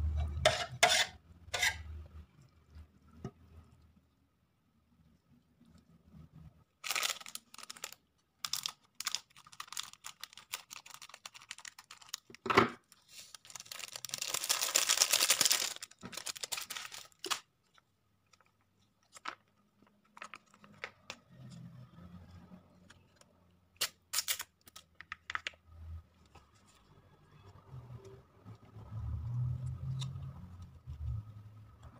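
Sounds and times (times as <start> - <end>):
foil sachets crinkling: 6.8 - 17.5
foil tearing: 13.2 - 17.4.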